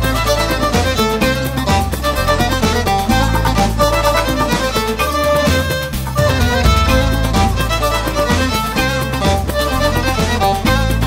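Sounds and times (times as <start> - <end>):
upbeat dance song with fiddle: 0.0 - 11.0.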